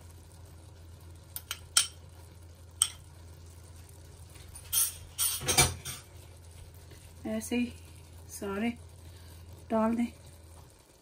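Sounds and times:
low steady hum: 0.0s - 11.0s
glass bowl clinking on metal pot: 2.8s - 3.0s.

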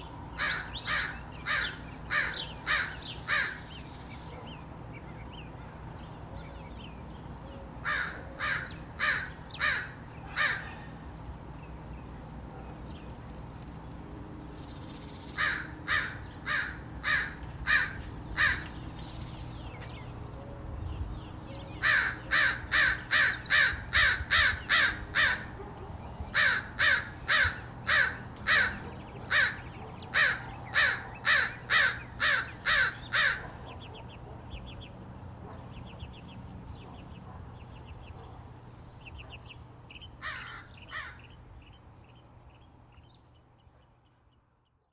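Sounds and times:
crows cawing: 0.4s - 3.7s, 7.8s - 11.0s, 15.4s - 18.7s, 21.8s - 25.6s, 26.3s - 33.6s, 40.2s - 41.3s.

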